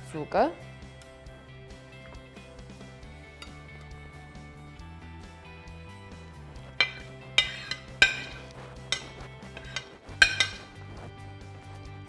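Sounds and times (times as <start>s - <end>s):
background music: 0.0s - 12.0s
metal spoon clinking on plate: 6.8s - 10.8s.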